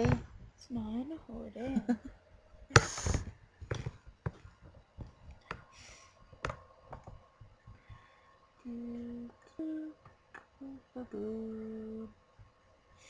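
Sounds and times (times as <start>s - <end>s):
soft breathy rush: 5.7s - 6.2s, 7.7s - 8.6s.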